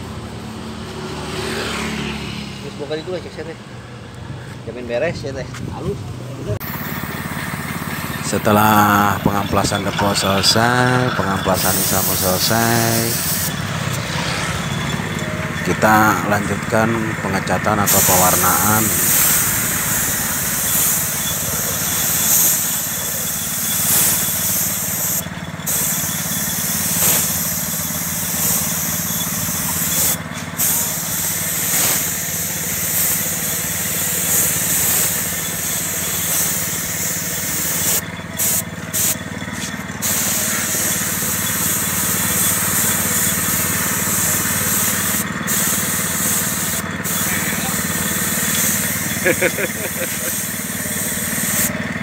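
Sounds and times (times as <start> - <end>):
paint spray gun hissing: 6.6 - 14.0, 17.8 - 51.9.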